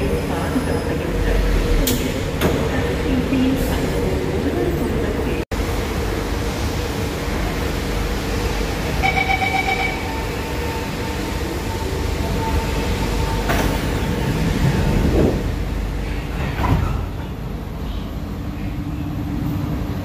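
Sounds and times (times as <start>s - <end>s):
train equipment humming: 0.0s - 20.0s
steady warning tone: 8.7s - 13.4s
train doors sliding shut: 10.1s - 18.1s.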